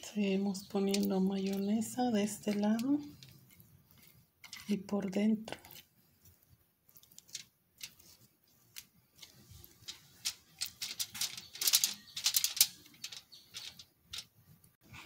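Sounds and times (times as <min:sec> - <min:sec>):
fork spreading mayonnaise: 0:02.5 - 0:04.8, 0:05.6 - 0:10.2.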